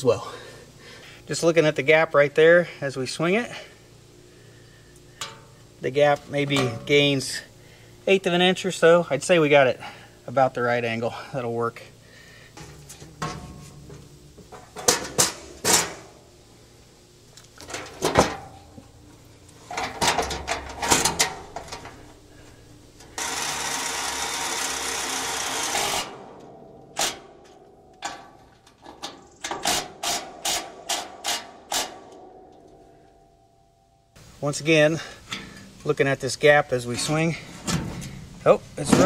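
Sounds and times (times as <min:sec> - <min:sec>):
welder hissing: 0:21.9 - 0:26.2.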